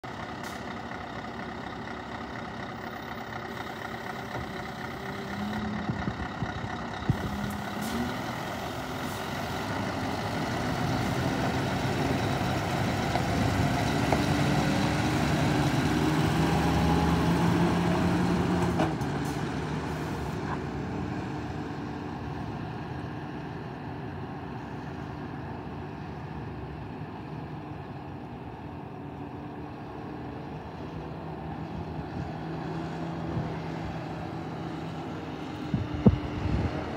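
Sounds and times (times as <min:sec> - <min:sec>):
truck diesel engine running: 0:00.0 - 0:36.9.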